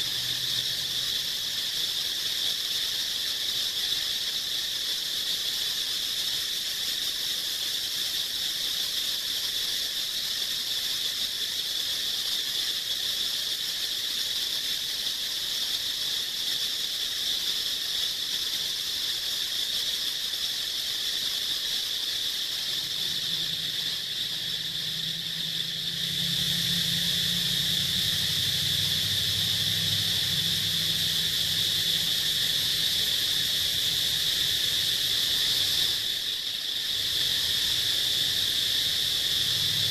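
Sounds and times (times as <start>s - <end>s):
insects droning: 0.0s - 39.9s
low steady hum: 22.6s - 35.9s.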